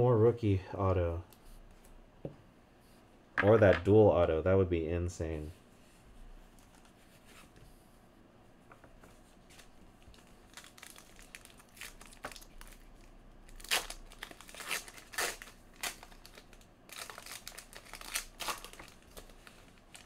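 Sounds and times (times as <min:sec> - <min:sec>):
foil wrapper crinkling: 0:10.1 - 0:20.0.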